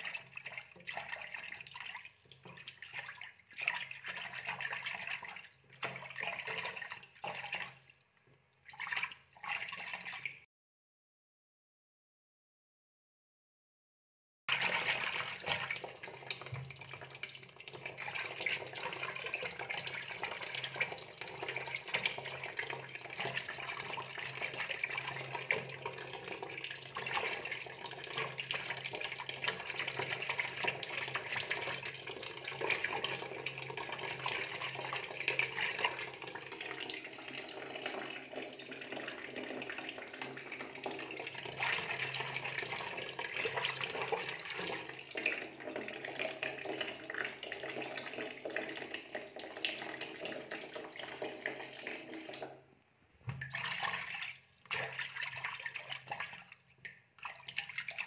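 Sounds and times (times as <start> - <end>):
water running and splashing: 0.0 - 8.0, 14.5 - 52.4.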